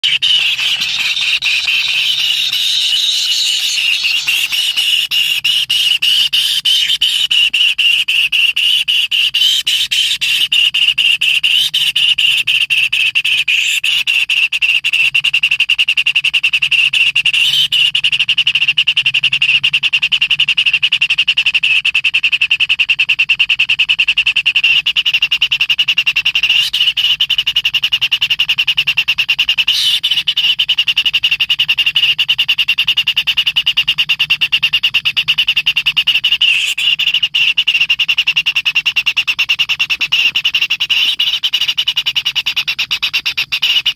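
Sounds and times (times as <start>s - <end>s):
nestlings begging calls: 0.0s - 7.5s, 9.2s - 10.5s, 26.4s - 27.0s, 29.7s - 30.6s, 36.4s - 37.6s, 40.8s - 41.7s.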